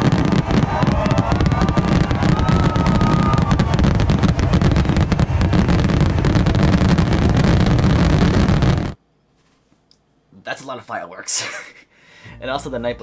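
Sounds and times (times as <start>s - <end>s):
fireworks crackling: 0.0s - 9.0s
low rumble of fireworks booms: 0.0s - 9.0s.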